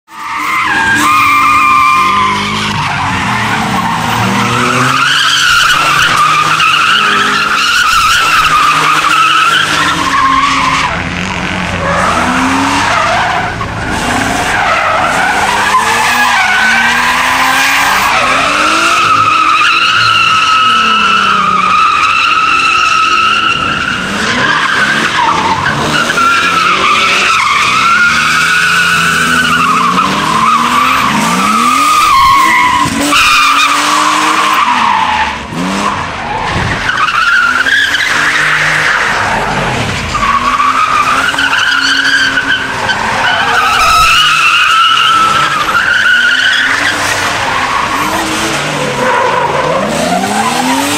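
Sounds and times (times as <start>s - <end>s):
car engine revving: 0.4s - 50.9s
tyres squealing: 35.9s - 50.9s.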